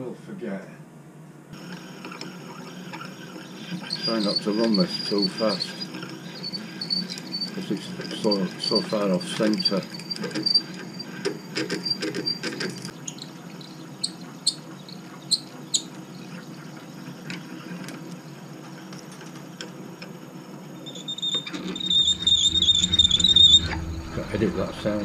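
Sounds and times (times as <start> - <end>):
lathe humming: 1.6 - 25.0
drill squealing into metal: 2.0 - 13.2, 20.8 - 25.0.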